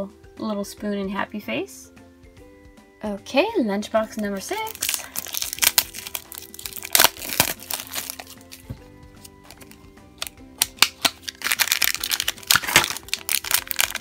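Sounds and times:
quiet background music: 0.0s - 14.0s
plastic wrapping crinkling: 4.2s - 14.0s.

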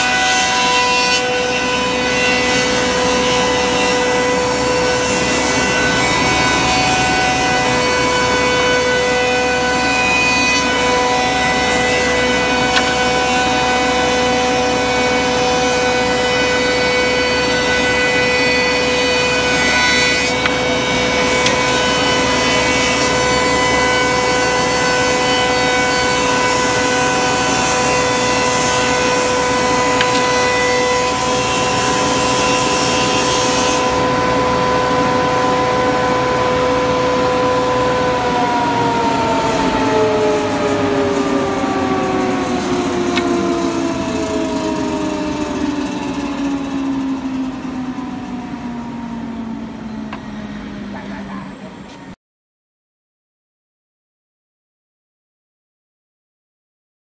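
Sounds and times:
rough wood cutting noise: 0.0s - 49.0s
saw machine whine: 0.0s - 52.2s.

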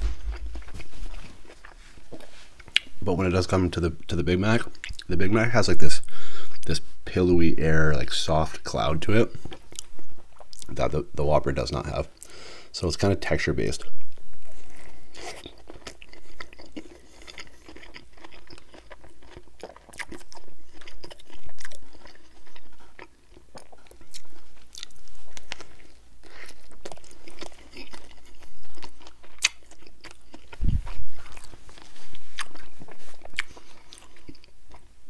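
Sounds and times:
dull low thump: 0.0s - 1.1s
man chewing: 0.0s - 3.0s, 9.3s - 10.7s, 14.0s - 35.0s.

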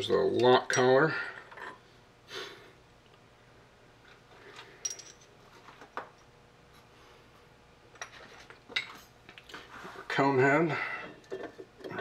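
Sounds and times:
metal parts clicking and clinking: 4.6s - 5.3s.

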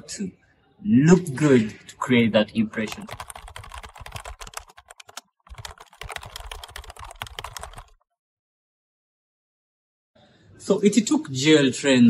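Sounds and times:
rapid keyboard typing: 2.8s - 8.0s.

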